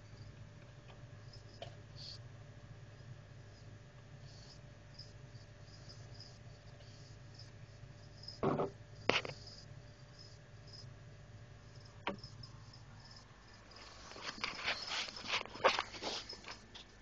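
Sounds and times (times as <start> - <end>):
clicks and scrapes: 13.8 - 16.9.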